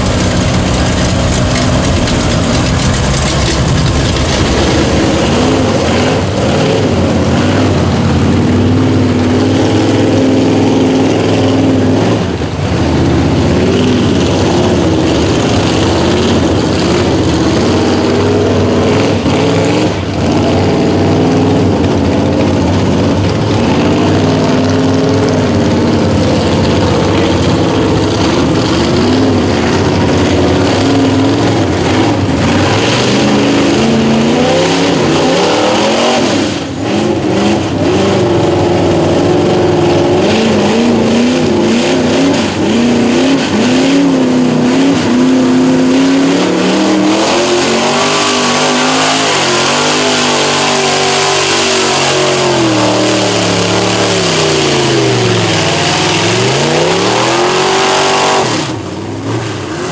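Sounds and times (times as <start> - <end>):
mud and water splashing: 0.0 - 21.9
truck engine revving: 0.0 - 59.9.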